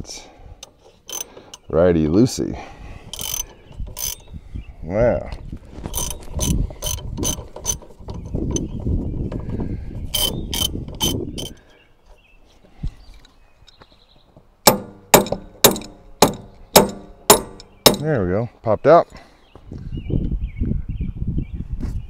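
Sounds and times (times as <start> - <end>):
ratchet wrench clicking: 0.6 - 1.6, 3.1 - 4.3, 5.9 - 8.7, 10.1 - 11.6, 14.7 - 18.0
hammer striking metal: 14.7 - 18.1.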